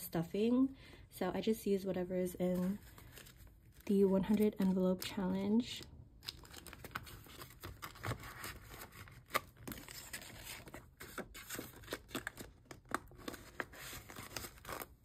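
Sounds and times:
paper and plastic rustling: 2.4s - 5.4s, 6.2s - 15.0s.

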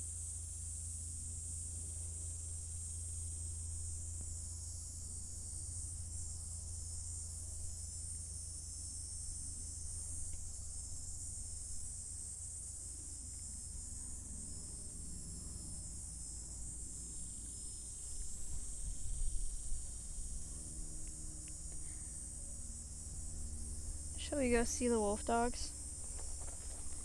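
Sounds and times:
constant low rumble: 0.0s - 27.0s
insects buzzing: 0.0s - 27.0s.

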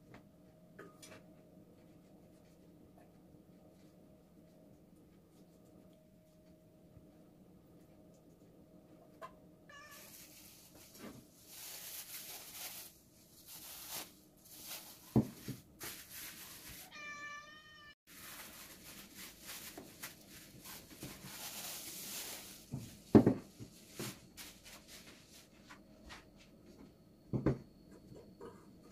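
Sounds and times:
cat meowing: 9.7s - 10.2s, 16.8s - 18.0s
rustling noise: 9.7s - 17.2s, 18.1s - 26.8s.

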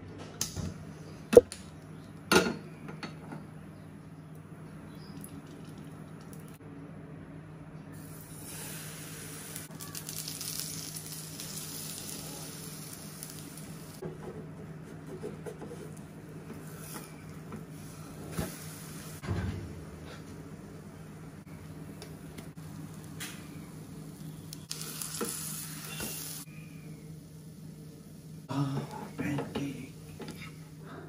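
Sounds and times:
batter sizzling in hot oil: 8.0s - 14.0s, 22.6s - 26.5s.

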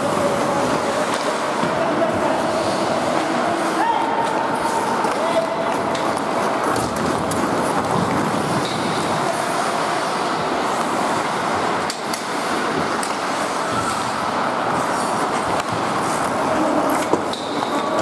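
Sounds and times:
skates scraping on ice: 0.0s - 18.0s
hockey sticks and puck clacking: 0.1s - 18.0s.

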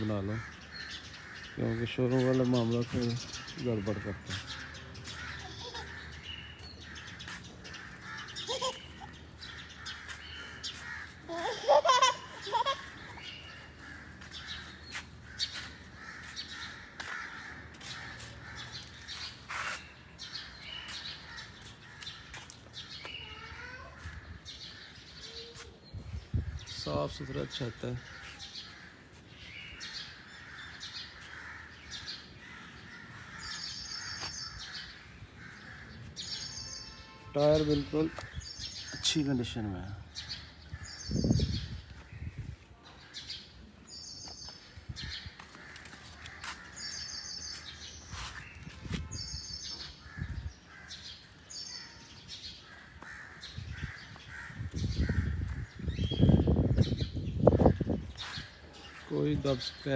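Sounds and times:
crows cawing: 0.0s - 2.6s, 3.2s - 25.4s, 26.5s - 36.5s, 37.9s - 39.0s, 40.2s - 41.2s, 44.3s - 48.0s, 49.2s - 56.1s
birds chirping: 0.0s - 59.9s.

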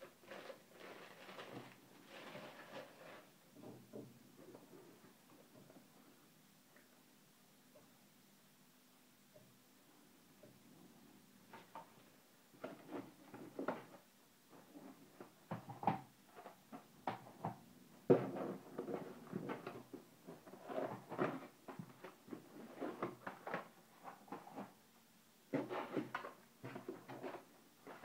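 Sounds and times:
cardboard boxes scraping and knocking: 25.5s - 28.0s.

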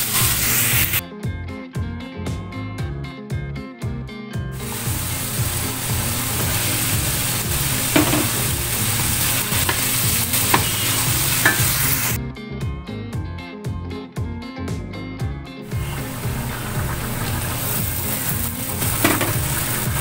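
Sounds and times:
vegetables sizzling in oil: 0.0s - 1.0s, 4.6s - 12.2s, 15.7s - 20.0s
background music: 0.0s - 20.0s.

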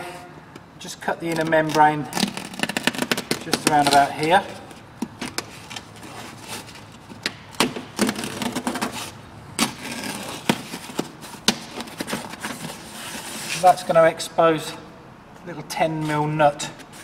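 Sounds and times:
crackles and rustles: 1.0s - 13.9s.

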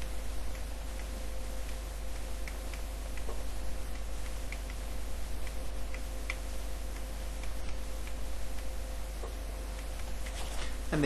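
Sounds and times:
electrical hum: 0.0s - 11.0s
stylus tapping while writing: 2.4s - 4.8s.

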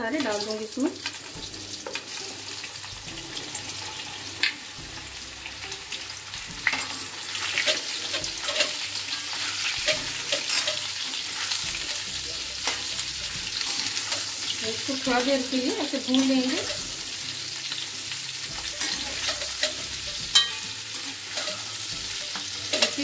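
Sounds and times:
food sizzling in hot oil: 0.0s - 23.0s
metal spatula scraping a pan: 0.1s - 23.0s.

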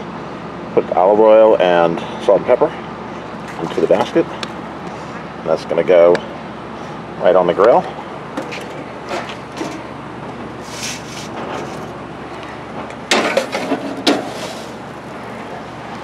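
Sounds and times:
outdoor background noise: 0.0s - 16.0s
metal basket clattering on grill: 13.1s - 14.8s.

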